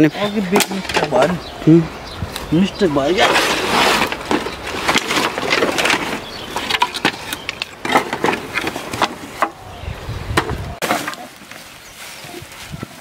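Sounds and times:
wooden planks knocking and clattering: 0.5s - 1.4s, 3.2s - 9.6s, 10.3s - 11.6s.

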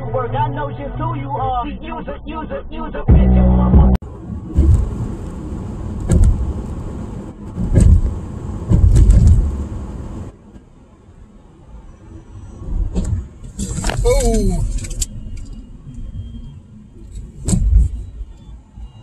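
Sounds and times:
heavy low thuds: 3.1s - 10.3s
road and engine noise inside car: 4.0s - 19.0s.

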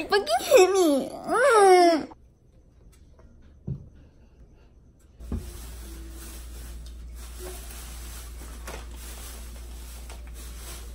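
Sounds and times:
steady low hum: 2.1s - 10.8s.

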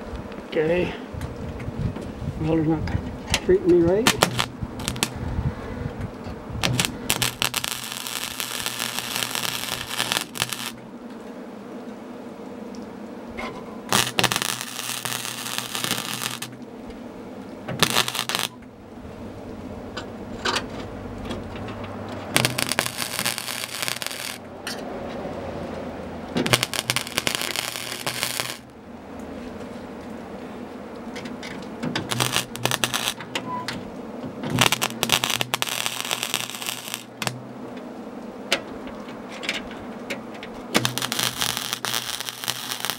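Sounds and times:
low steady hum: 0.0s - 42.9s
welder arc crackling and spitting: 3.6s - 5.3s, 6.0s - 11.9s, 13.9s - 16.7s, 17.4s - 18.7s, 21.4s - 30.2s, 31.0s - 33.4s, 34.4s - 37.8s, 40.1s - 42.9s.

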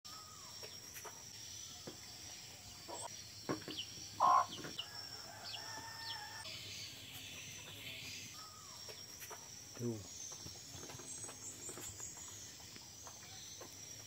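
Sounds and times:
high-pitched insect drone: 0.1s - 14.0s
hen clucking: 4.2s - 4.8s.

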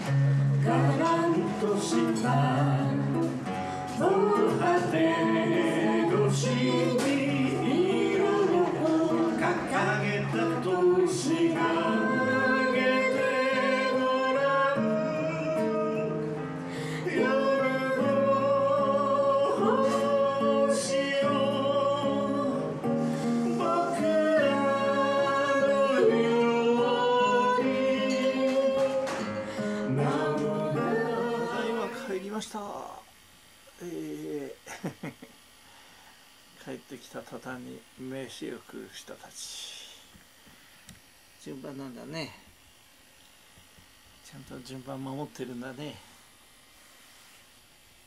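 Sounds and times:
person singing: 0.0s - 32.2s
strummed acoustic guitar: 0.0s - 32.2s.

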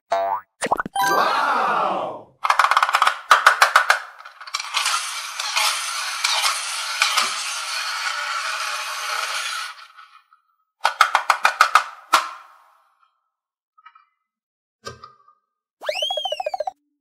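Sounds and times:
toy helicopter rattling whir: 2.5s - 10.2s.

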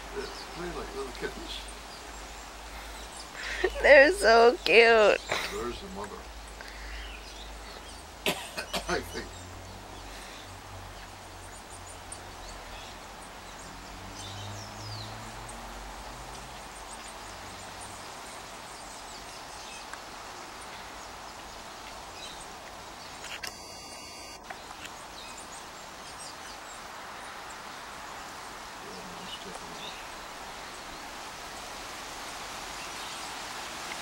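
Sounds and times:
steady hiss: 0.0s - 34.0s
faint bird chirps: 23.2s - 26.4s.

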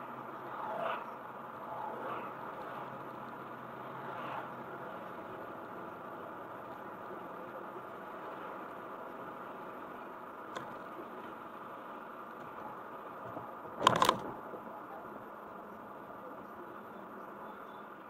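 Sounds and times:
car road and engine noise: 0.0s - 18.0s
loud clatter of clicks: 13.2s - 14.4s.

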